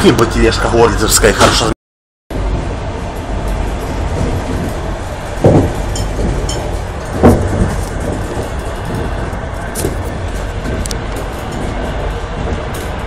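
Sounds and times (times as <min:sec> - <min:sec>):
train wheels rumbling on rails: 0:02.3 - 0:13.0
heavy knocks: 0:04.1 - 0:13.0.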